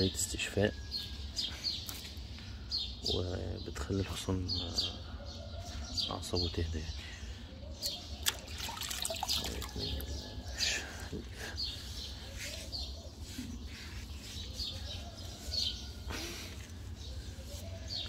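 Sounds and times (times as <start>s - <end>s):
small birds chirping: 0.0s - 18.0s
water dripping: 8.2s - 9.9s
wet loofah rubbing: 11.4s - 18.0s.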